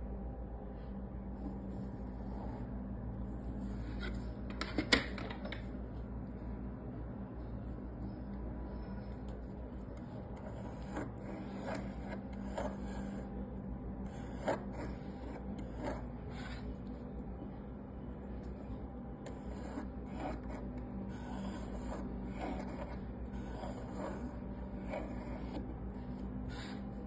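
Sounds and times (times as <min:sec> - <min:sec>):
steady low hum: 0:00.0 - 0:27.0
compass lead scratching wood: 0:19.3 - 0:25.8.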